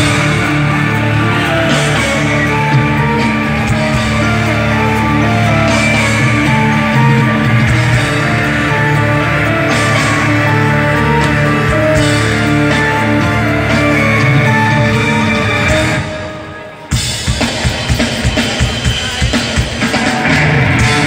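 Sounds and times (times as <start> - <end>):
loud rock music over loudspeakers: 0.0 - 21.0.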